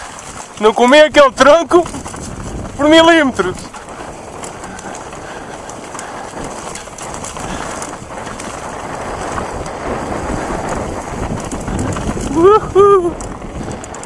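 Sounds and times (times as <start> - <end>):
bike rattling and knocking: 0.0 - 14.0
tyres rolling over dry leaves: 0.0 - 14.0
wind rushing over microphone: 0.0 - 14.0.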